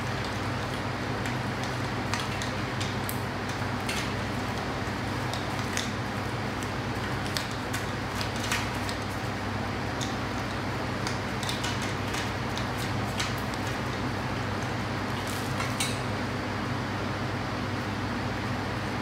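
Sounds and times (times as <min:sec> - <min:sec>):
steady background hum: 0:00.0 - 0:19.0.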